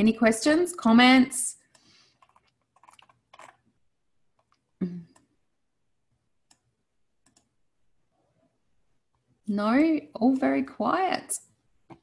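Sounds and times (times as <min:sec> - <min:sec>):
mouse and keyboard clicks: 0:01.7 - 0:03.6, 0:06.5 - 0:07.5.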